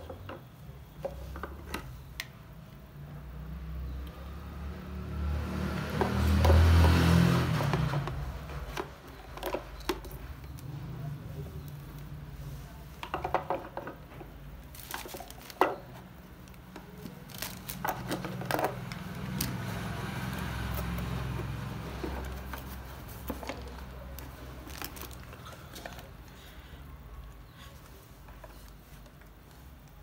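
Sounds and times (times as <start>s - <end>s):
rubber hoses being moved: 13.0s - 26.4s.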